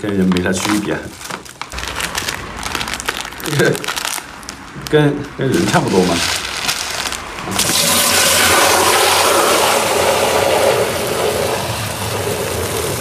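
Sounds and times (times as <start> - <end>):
water pouring into plastic drinker: 7.5 - 13.0.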